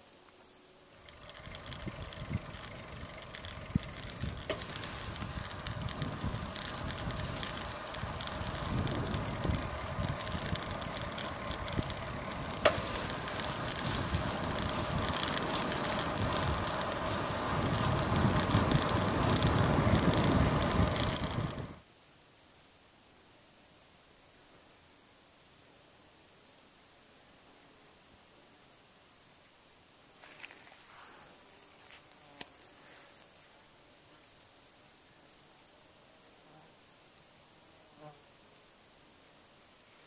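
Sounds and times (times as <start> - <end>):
bicycle tyre noise and rattle: 0.0 - 21.8, 30.2 - 33.5
wind rumbling on microphone: 1.1 - 21.8.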